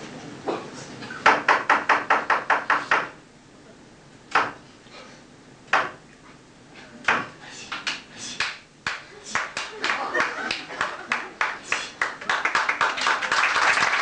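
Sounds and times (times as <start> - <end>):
sharp knocks on wood: 1.2 - 3.1, 4.3 - 4.6.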